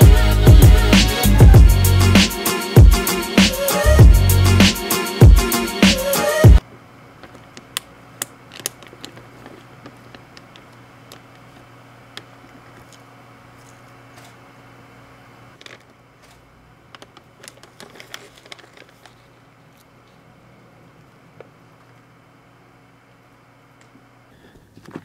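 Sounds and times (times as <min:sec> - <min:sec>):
steady low hum: 0:00.0 - 0:24.6
plastic bag crinkling: 0:07.2 - 0:14.4, 0:15.6 - 0:20.2.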